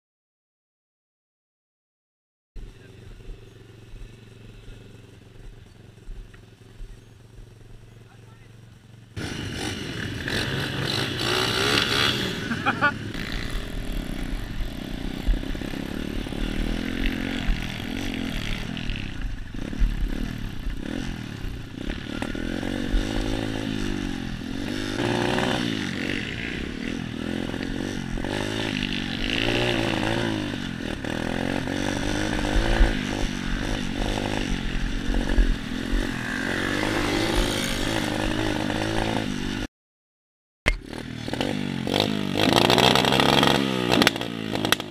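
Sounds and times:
motorbike engine revving: 8.8 - 39.7, 40.7 - 44.9.

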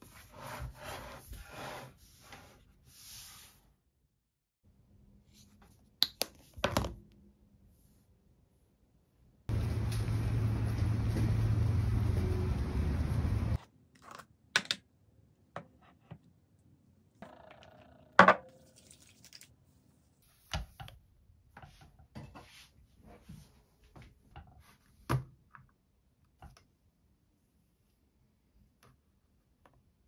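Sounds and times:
low rumble of street noise: 9.5 - 13.6.

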